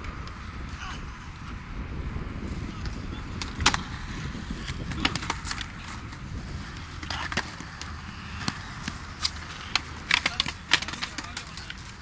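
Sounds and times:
wind rumble on microphone: 0.0 - 12.0
skateboard clattering on concrete: 2.9 - 12.0.

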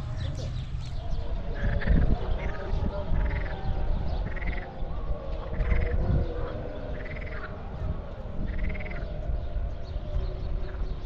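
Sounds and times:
steady low rumble: 0.0 - 4.4.

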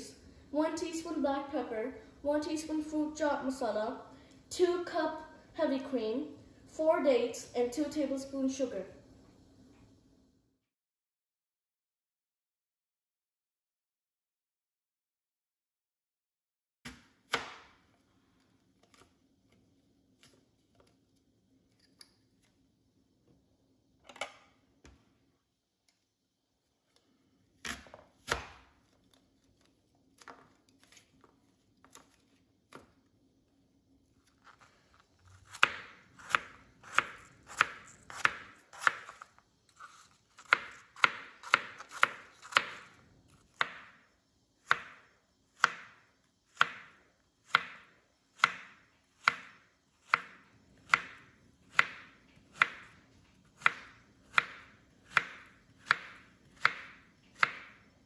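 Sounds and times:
knife chopping on plastic board: 27.6 - 28.7, 35.4 - 39.2, 40.4 - 42.9, 43.5 - 44.0, 44.6 - 45.0, 45.6 - 46.0, 46.6 - 46.9, 47.5 - 53.0, 53.6 - 57.8.

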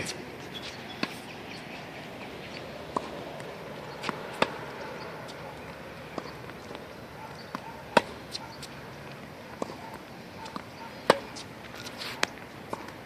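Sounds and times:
tennis ball bouncing: 0.0 - 13.0
tennis ball racket hits: 2.6 - 8.8, 9.5 - 13.0.

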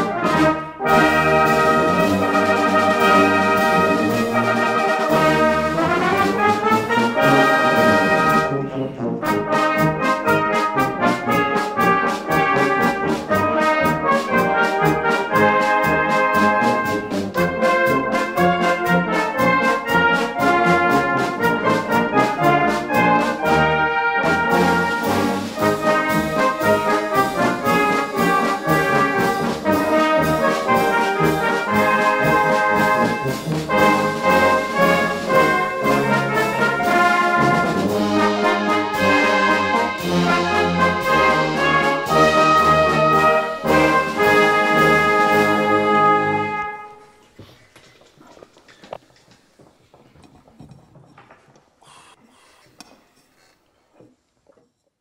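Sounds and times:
brass band playing a march: 0.0 - 47.4
steady drum beat: 24.3 - 45.9.

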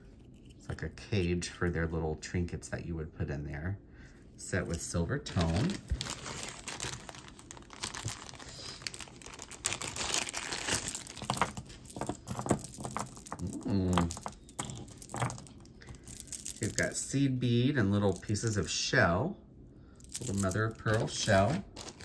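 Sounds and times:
packaging crinkling and rustling: 5.3 - 16.8, 20.2 - 22.0
jewelry pieces clicking together: 10.6 - 16.9.

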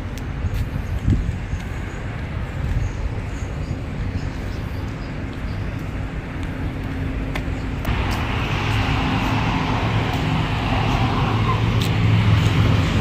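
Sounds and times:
traffic rumble: 0.0 - 13.0
rushing hiss of passing vehicle: 7.9 - 13.0.

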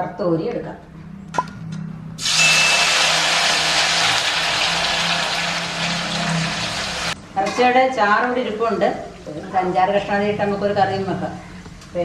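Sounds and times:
oil sizzling: 2.2 - 7.2.

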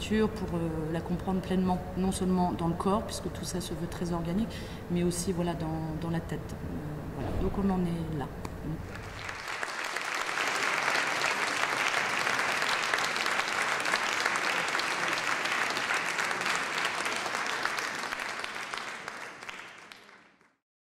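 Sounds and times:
audience applauding: 8.9 - 20.6.

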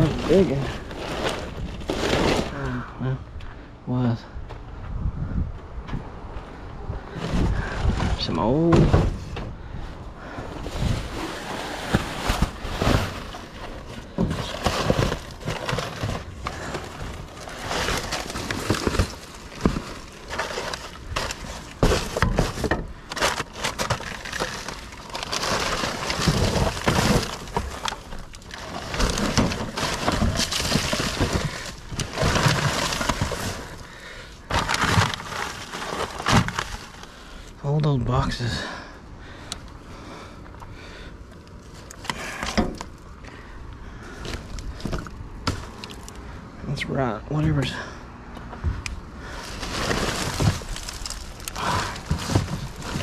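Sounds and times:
rustling and clattering of trash: 0.0 - 3.0, 7.0 - 46.4, 47.3 - 53.0
objects knocking and banging: 7.2 - 9.6.

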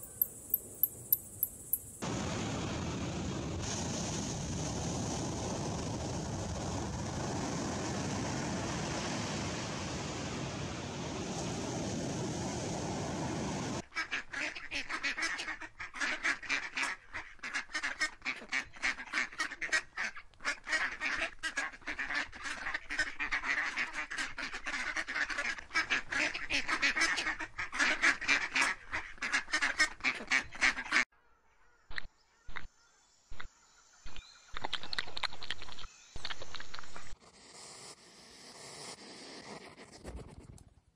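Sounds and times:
geese and ducks honking and quacking: 13.9 - 31.0.

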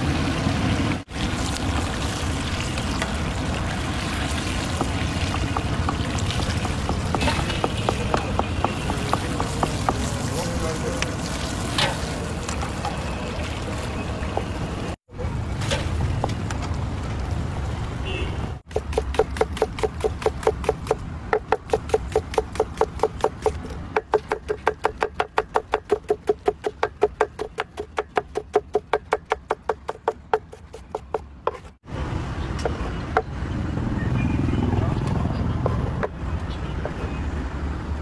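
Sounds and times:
street stall noise: 0.0 - 38.0
knife chopping on wooden board: 4.8 - 10.1, 18.7 - 31.8.

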